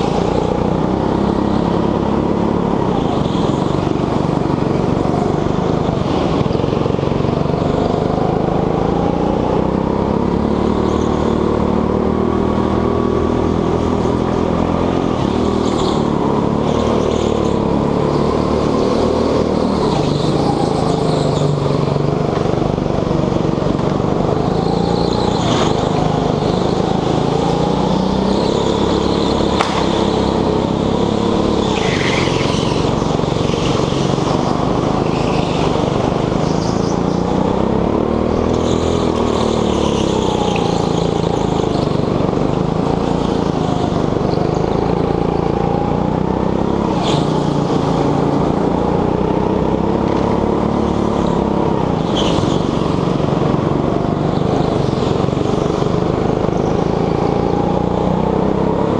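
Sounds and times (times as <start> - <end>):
go-kart engine revving: 0.0 - 58.9.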